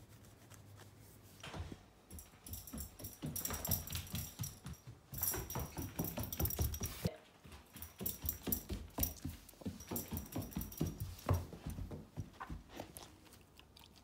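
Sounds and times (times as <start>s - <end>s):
puppy paws on hardwood floor: 0.4s - 13.5s
bright jingling: 2.1s - 7.1s, 7.7s - 12.0s.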